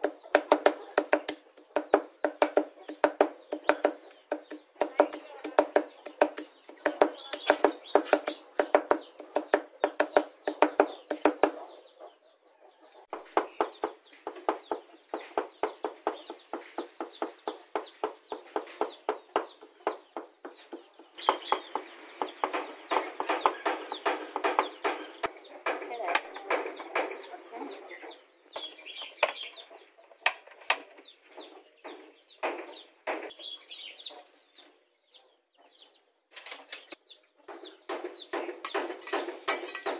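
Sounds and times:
cleaver chopping on wooden block: 0.0 - 11.6, 13.1 - 25.1.

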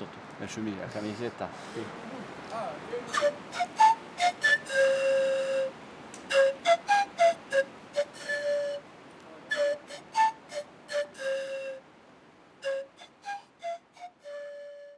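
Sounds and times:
flute melody: 2.9 - 11.8, 12.6 - 14.9.

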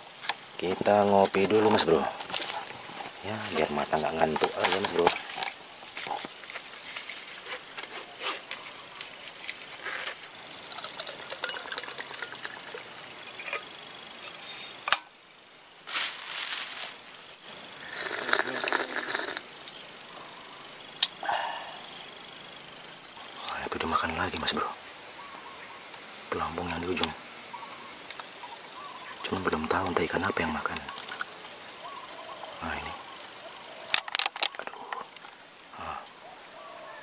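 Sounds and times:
crickets chirring: 0.0 - 37.0
thermos flask clicks and rustles: 33.9 - 34.7.

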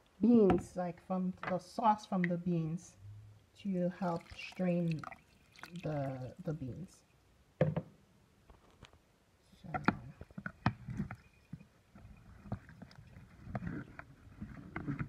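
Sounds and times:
liquid sloshing in a pot: 4.0 - 6.6, 9.8 - 15.0.

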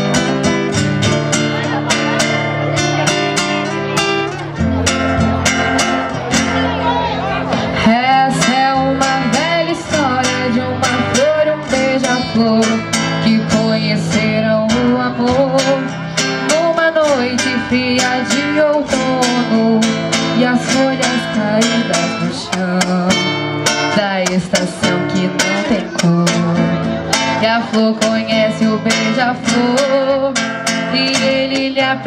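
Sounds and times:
acoustic guitar strumming: 0.0 - 32.0
woman singing: 7.8 - 32.0.

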